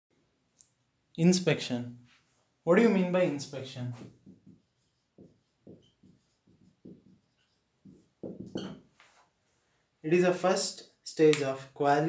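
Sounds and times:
marker scratching on whiteboard: 2.8s - 9.3s.

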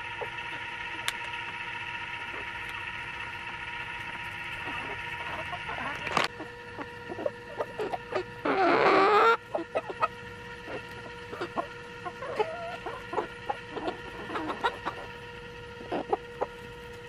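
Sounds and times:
hens clucking: 4.3s - 16.7s
loud chicken call: 7.1s - 15.2s.

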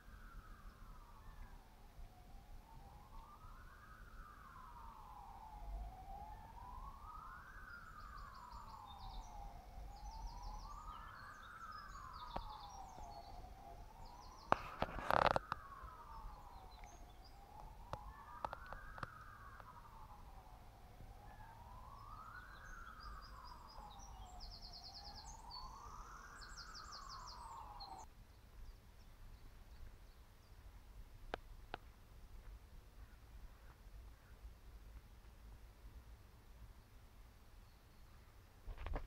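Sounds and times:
siren wailing: 0.0s - 28.1s
birds chirping faintly: 0.0s - 39.0s.

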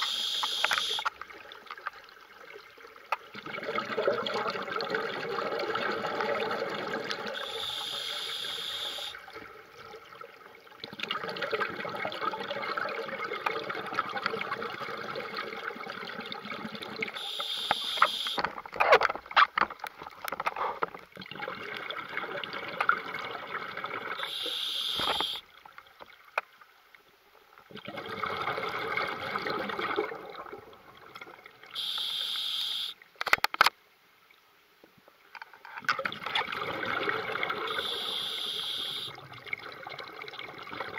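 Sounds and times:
regulator hissing: 0.0s - 1.0s, 7.4s - 9.2s, 17.2s - 18.4s, 24.2s - 25.4s, 37.7s - 39.1s
exhaled bubbles rushing: 3.3s - 7.6s, 10.8s - 17.2s, 21.2s - 24.4s, 27.7s - 31.7s, 36.0s - 37.9s.

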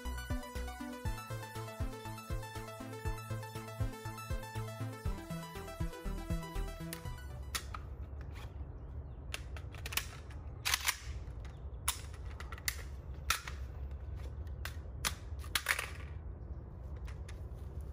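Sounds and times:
rifle metal parts clicking: 9.3s - 13.6s.

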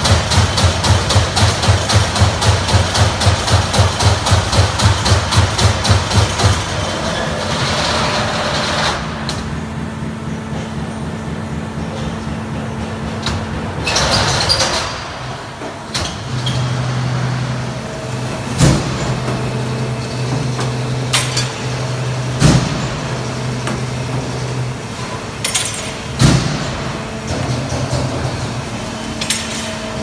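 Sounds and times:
low motor hum: 0.0s - 30.0s
punch press metal strikes: 22.3s - 23.2s, 25.4s - 28.2s.

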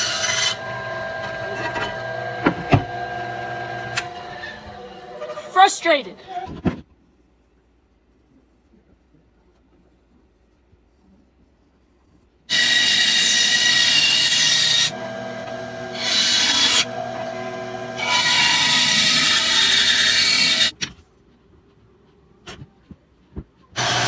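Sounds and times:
band saw cutting wood: 0.0s - 5.8s, 12.5s - 20.8s, 23.8s - 24.0s.

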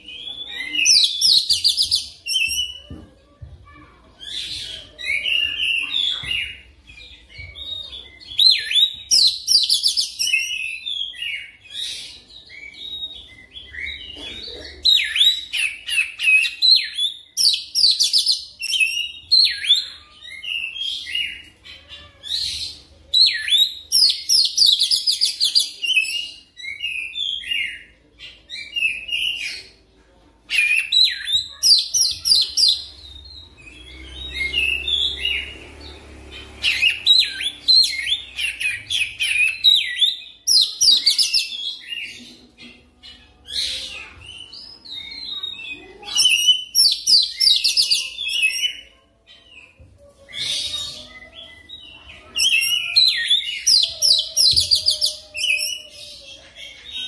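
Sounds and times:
bird singing: 30.5s - 57.0s.

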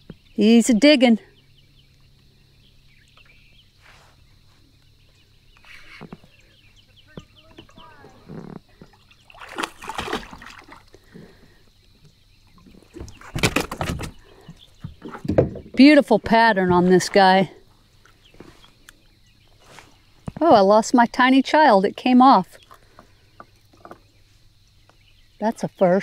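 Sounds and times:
fish splashing at water surface: 8.9s - 11.0s.

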